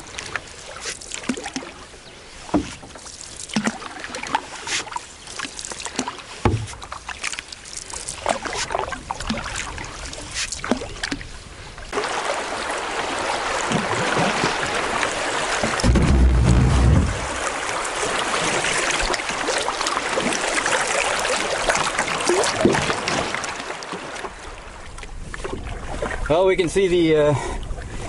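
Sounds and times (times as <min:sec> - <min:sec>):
running water rushing: 0:00.0 - 0:27.5
paddle strokes splashing: 0:00.0 - 0:28.0
paddle knocking against canoe: 0:02.5 - 0:03.0, 0:05.9 - 0:07.0, 0:13.5 - 0:17.6.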